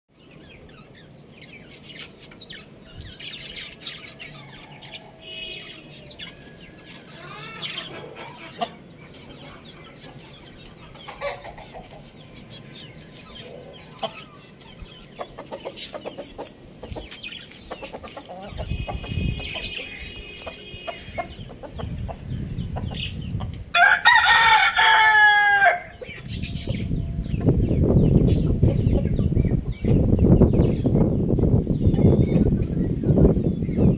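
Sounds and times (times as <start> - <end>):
rooster clucking: 7.2 - 9.9, 10.9 - 12.1, 13.4 - 14.4, 15.2 - 26.2
rooster crowing: 23.7 - 26.0.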